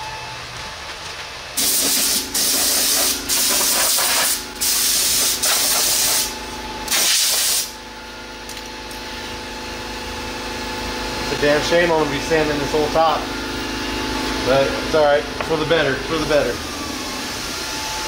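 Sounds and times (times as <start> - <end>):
steady hum: 0.0 - 18.0
compressed air blow gun hissing: 1.6 - 6.3.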